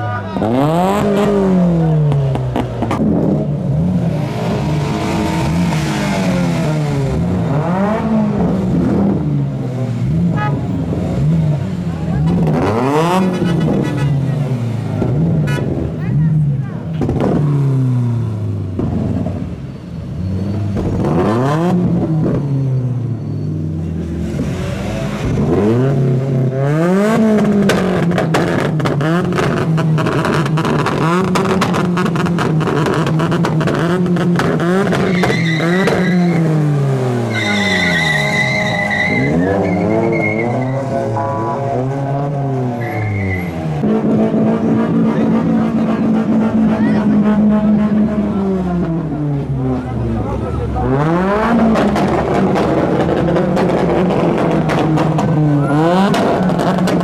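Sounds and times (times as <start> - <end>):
car engine revving hard: 0.3 - 16.0, 20.3 - 22.8, 24.0 - 57.0
tyres squealing: 34.8 - 36.6, 37.2 - 41.2.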